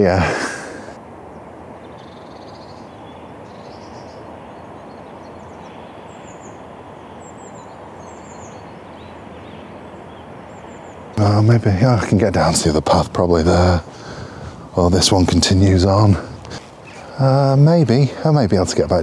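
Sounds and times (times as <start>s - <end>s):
low outdoor background noise: 0.0s - 19.0s
faint high bird chirps: 1.3s - 11.3s.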